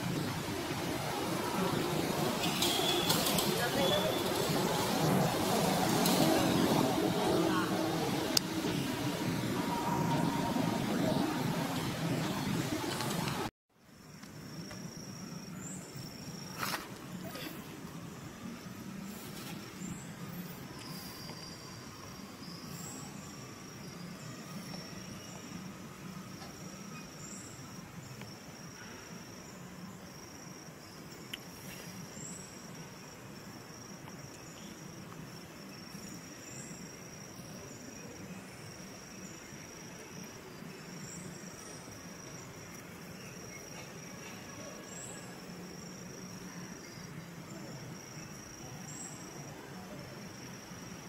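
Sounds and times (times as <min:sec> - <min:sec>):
faint high insect chirp: 0:00.2 - 0:13.0, 0:13.8 - 0:51.0
insects trilling: 0:13.9 - 0:51.0.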